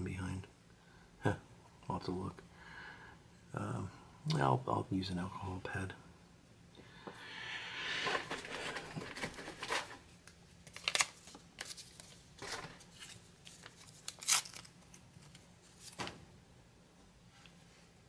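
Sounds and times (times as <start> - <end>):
packet crinkling: 10.6 - 15.9
packet tearing open: 10.7 - 12.0, 13.0 - 14.8.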